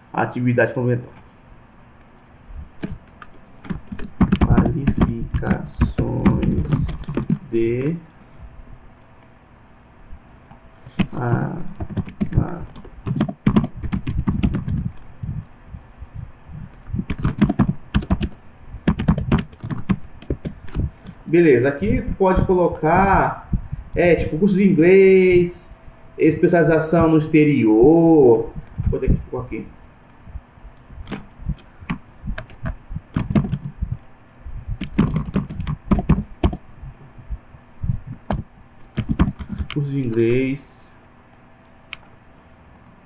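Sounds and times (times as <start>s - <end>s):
typing on computer keyboard: 2.8s - 8.1s, 10.8s - 15.5s, 16.7s - 21.2s, 31.0s - 36.6s, 38.3s - 40.4s.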